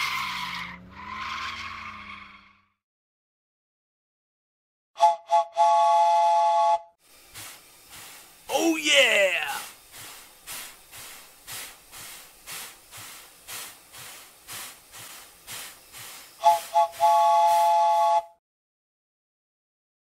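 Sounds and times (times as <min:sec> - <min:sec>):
train whistle: 0:05.0 - 0:07.0, 0:16.4 - 0:18.4
steam locomotive chuffing: 0:07.0 - 0:18.2.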